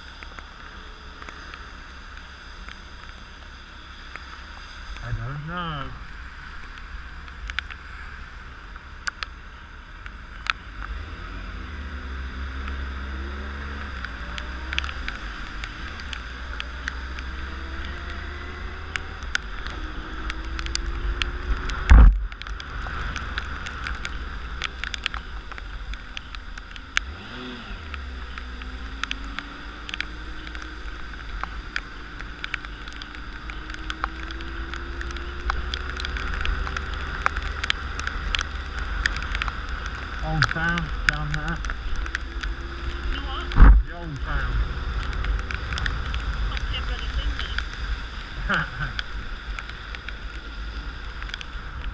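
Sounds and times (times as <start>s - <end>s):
raindrops ticking on camera: 0.0s - 51.9s
wind and road rumble: 0.0s - 51.9s
motorcycle engine accelerating: 26.2s - 49.0s.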